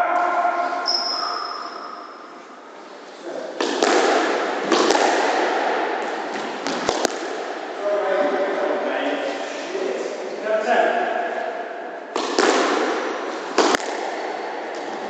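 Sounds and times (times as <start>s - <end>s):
squash ball smacking: 3.6s - 7.7s, 12.1s - 15.0s.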